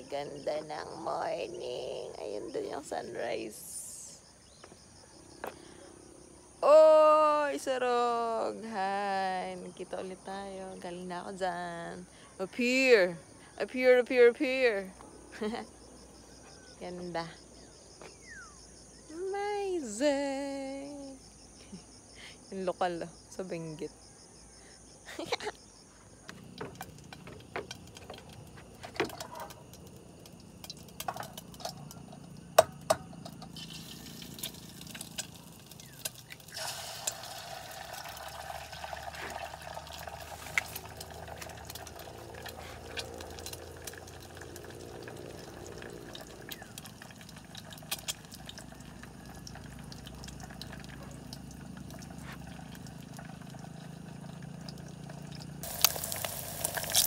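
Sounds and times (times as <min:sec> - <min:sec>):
small knocks and clicks: 0:26.3 - 0:33.6
egg sizzling in a pot: 0:26.3 - 0:57.0.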